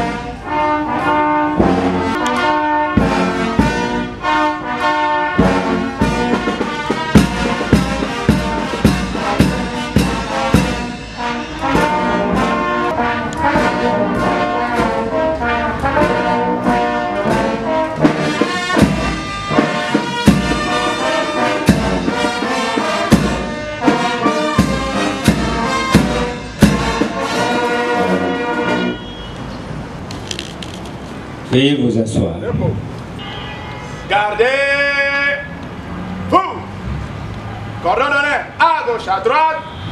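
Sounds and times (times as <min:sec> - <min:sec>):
brass band playing: 0:00.0 - 0:29.2.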